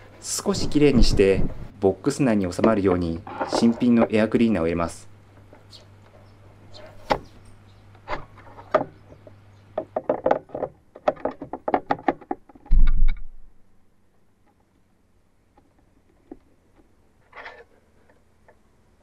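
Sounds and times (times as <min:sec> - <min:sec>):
plastic clicks and knocks: 0:08.0 - 0:13.3.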